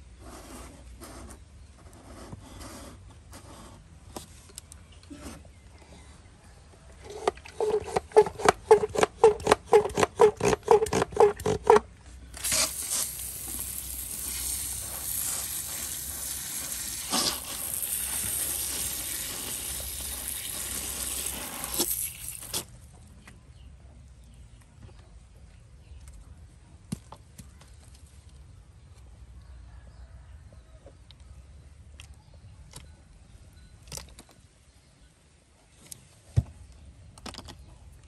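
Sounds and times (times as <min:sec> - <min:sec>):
squeaky pump strokes: 0:07.0 - 0:11.8, 0:12.4 - 0:22.7
hiss of water mist spraying: 0:12.4 - 0:22.7.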